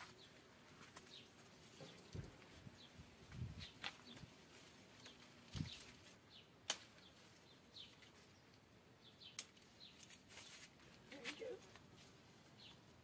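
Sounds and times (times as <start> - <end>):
secateurs snipping stems: 6.6 - 7.0.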